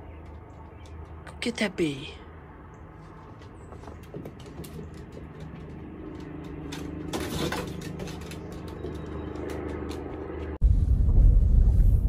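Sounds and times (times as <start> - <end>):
dog claws clicking on wooden deck: 0.0 - 1.2, 3.4 - 10.6
steady low hum: 0.0 - 12.0.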